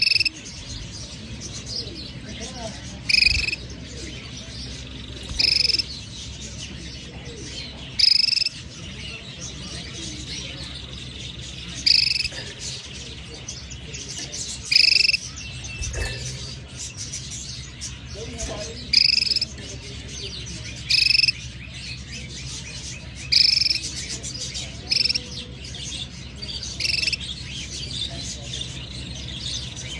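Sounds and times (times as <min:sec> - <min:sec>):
canary call: 0:00.0 - 0:00.4, 0:03.1 - 0:03.6, 0:05.0 - 0:06.0, 0:08.0 - 0:08.6, 0:11.8 - 0:12.4, 0:14.6 - 0:16.4, 0:18.9 - 0:19.5, 0:20.8 - 0:21.4, 0:23.3 - 0:24.0, 0:24.7 - 0:25.3, 0:26.7 - 0:27.2
faint high chirping and twittering: 0:00.0 - 0:29.9.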